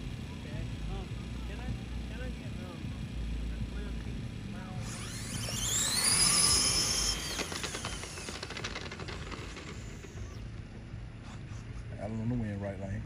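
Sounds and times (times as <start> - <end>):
electric motors whining: 1.0 - 11.8
faint clicks and rattles: 7.3 - 10.6.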